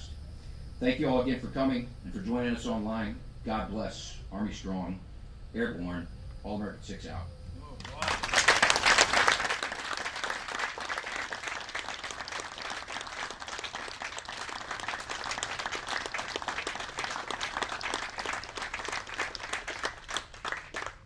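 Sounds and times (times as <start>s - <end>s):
audience applauding: 7.8s - 21.0s.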